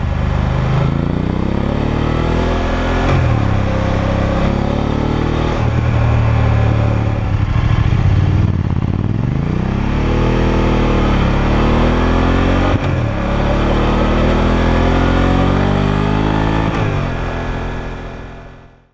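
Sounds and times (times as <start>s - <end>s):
motorcycle engine revving: 0.0s - 18.9s.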